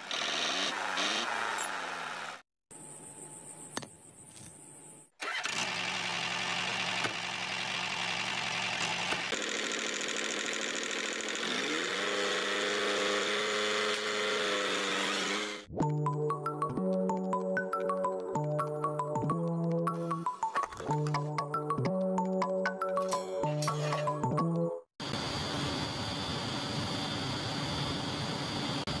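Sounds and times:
small engine running: 0:00.0 - 0:02.4, 0:05.2 - 0:15.7.

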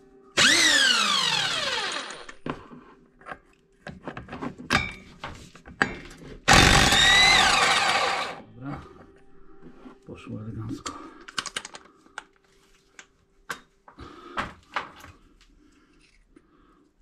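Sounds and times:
power tool whining: 0:00.4 - 0:02.4, 0:06.5 - 0:08.4.

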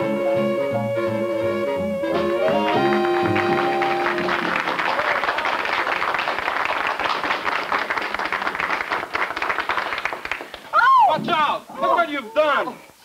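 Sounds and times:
dance band final chord: 0:00.0 - 0:04.6
applause: 0:02.4 - 0:10.8.

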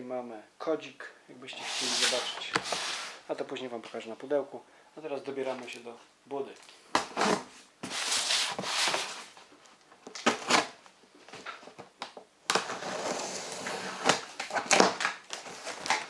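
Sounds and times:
cardboard box scraping and rustling: 0:01.6 - 0:03.2, 0:12.6 - 0:14.2.

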